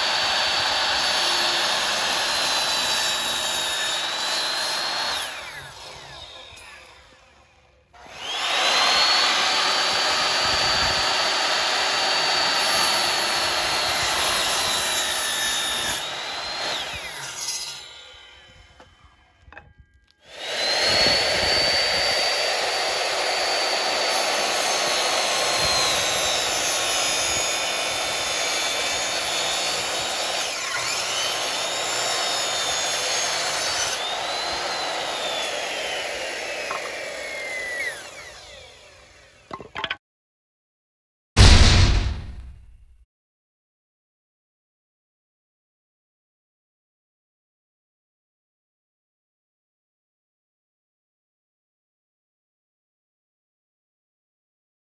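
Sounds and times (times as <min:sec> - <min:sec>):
miter saw cutting wood: 0:00.0 - 0:39.7.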